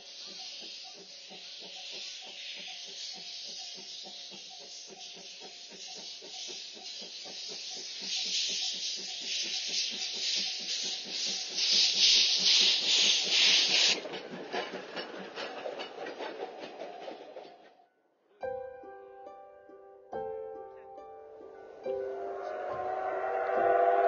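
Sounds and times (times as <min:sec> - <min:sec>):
steam hissing: 0:00.0 - 0:17.1
steam locomotive chuffing: 0:00.0 - 0:17.9, 0:21.4 - 0:24.0
train coaches rattling: 0:00.0 - 0:17.9.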